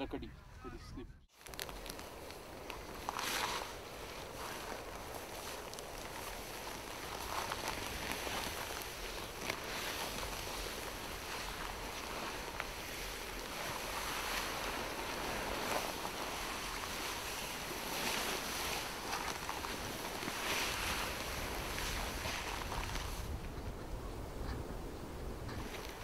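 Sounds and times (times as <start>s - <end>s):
wind noise on microphone: 0.0s - 26.0s
rustling grass and clothing: 1.3s - 26.0s.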